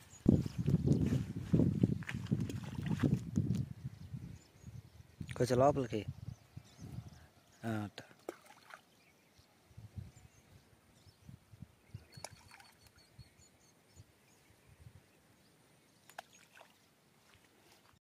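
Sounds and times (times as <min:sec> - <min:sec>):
faint outdoor ambience: 0:00.0 - 0:18.0.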